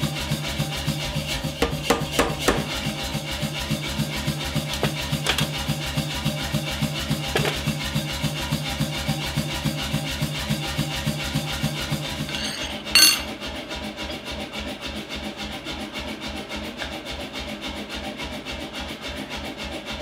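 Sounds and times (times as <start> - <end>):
steel clanking on anvil: 12.2 - 13.4.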